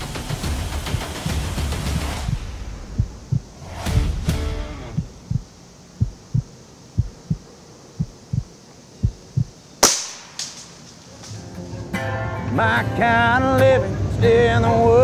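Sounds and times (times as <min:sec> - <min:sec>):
slow heartbeat thumps: 0:00.6 - 0:09.6.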